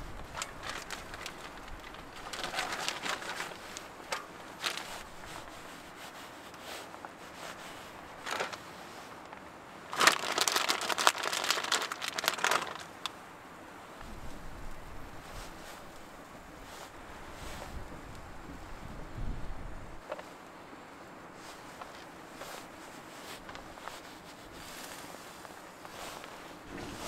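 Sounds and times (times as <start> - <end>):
plastic packaging crinkling: 0.0 - 5.7, 8.2 - 8.7, 9.9 - 13.1.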